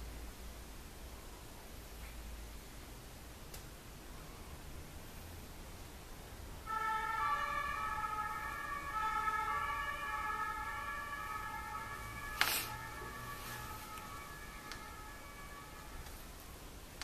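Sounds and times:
two-tone siren: 6.7 - 16.4.

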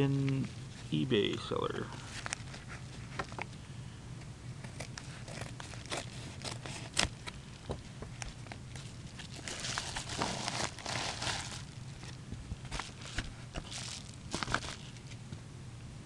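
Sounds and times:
packaging crinkling: 4.6 - 15.2.

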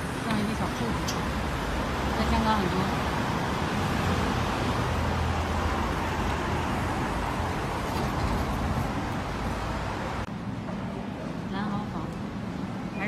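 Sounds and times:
road traffic rumble and hiss: 0.0 - 13.0.

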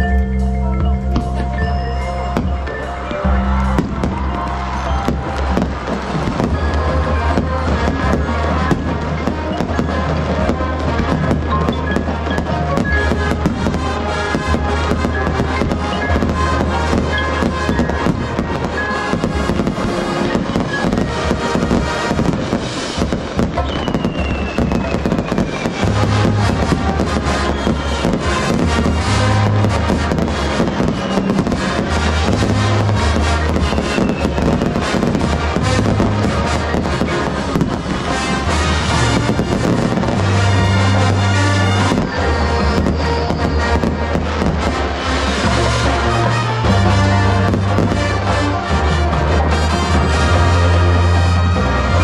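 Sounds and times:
marching band playing: 0.0 - 52.0
fireworks popping and crackling: 0.9 - 52.0.

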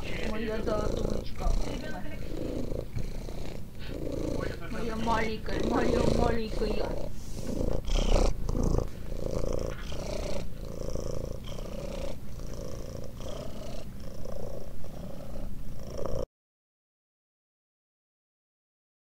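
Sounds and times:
cat purring: 0.0 - 16.3.

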